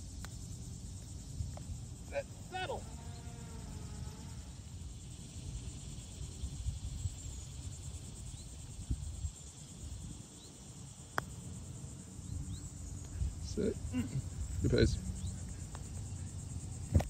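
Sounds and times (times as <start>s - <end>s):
high insect buzz: 0.0s - 17.0s
low wind rumble: 5.0s - 10.9s.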